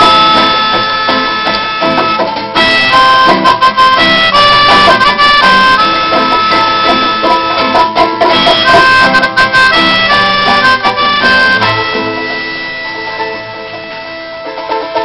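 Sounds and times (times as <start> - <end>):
melodica playing: 0.0 - 15.0
strummed acoustic guitars: 0.0 - 15.0.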